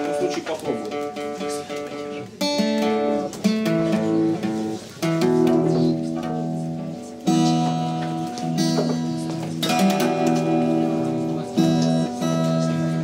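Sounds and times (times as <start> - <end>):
acoustic guitar chords strummed: 0.0 - 13.0.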